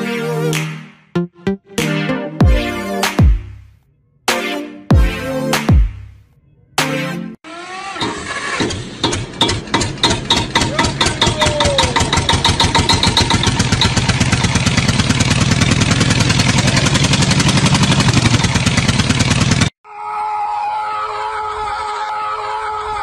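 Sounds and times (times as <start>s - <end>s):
engine starting and running: 7.4s - 19.8s.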